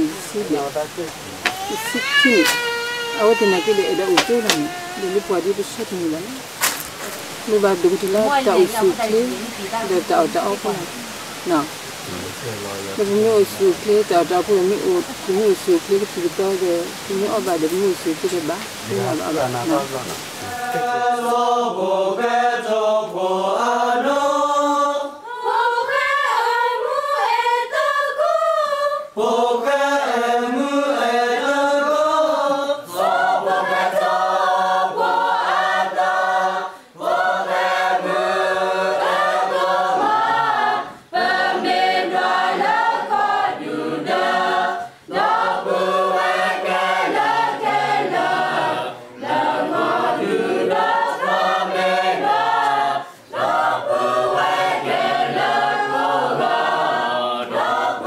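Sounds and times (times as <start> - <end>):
choir singing: 0.0 - 2.5, 3.2 - 6.6, 7.2 - 58.0.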